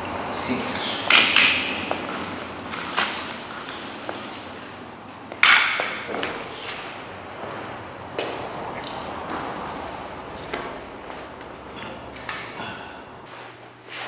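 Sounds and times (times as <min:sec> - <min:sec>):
hand tools clattering on floor: 0:10.4 - 0:13.3.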